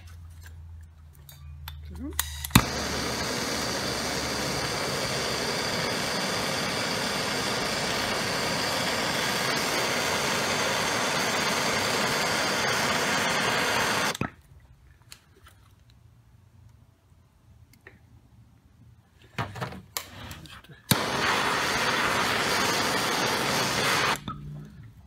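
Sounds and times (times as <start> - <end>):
blowtorch flame hissing: 2.5 - 14.2, 20.9 - 24.2.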